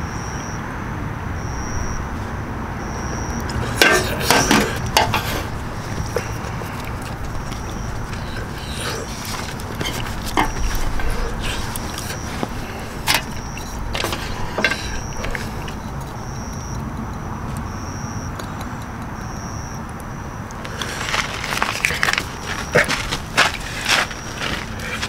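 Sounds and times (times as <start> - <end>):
outdoor background noise: 0.0 - 25.0
glass bottle clinking on metal tray: 3.7 - 5.5.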